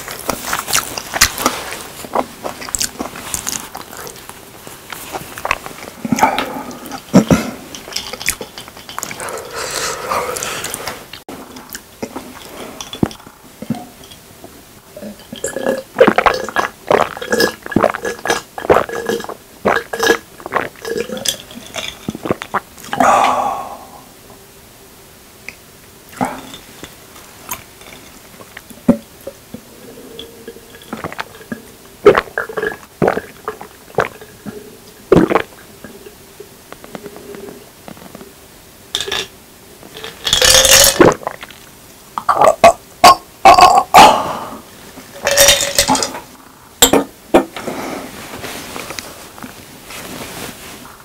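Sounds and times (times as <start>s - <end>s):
sipping and swallowing: 5.1s - 13.8s, 15.0s - 24.1s, 27.5s - 38.2s, 40.0s - 41.6s.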